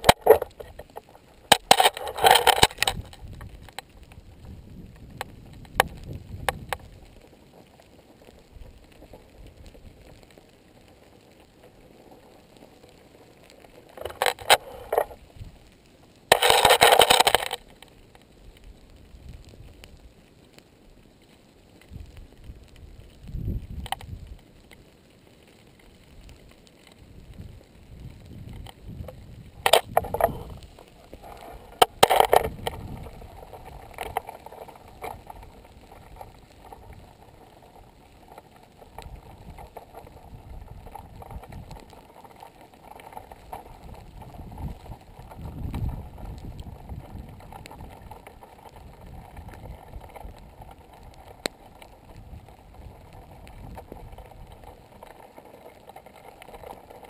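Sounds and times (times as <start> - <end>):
sharp knocks and crackles: 0.0 - 57.0
wind buffeting microphone: 2.3 - 7.2, 21.9 - 24.4, 27.0 - 37.9, 38.8 - 41.9, 43.2 - 55.0.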